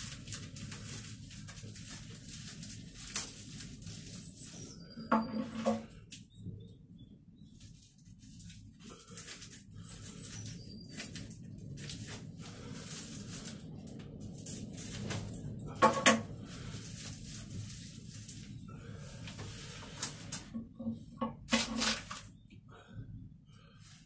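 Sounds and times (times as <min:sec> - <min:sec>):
hands pulling packing tape: 0:00.0 - 0:04.6, 0:21.5 - 0:22.3
scissors cutting cardboard tube: 0:21.5 - 0:22.3.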